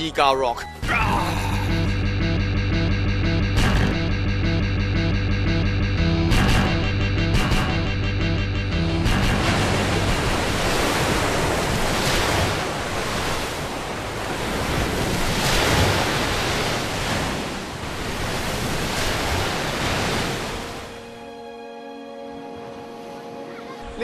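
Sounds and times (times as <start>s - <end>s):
surf breaking over rocks: 9.0s - 20.9s.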